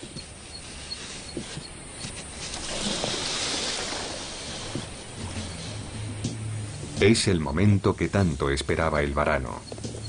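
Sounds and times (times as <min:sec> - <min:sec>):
water splashing: 0:02.3 - 0:07.1.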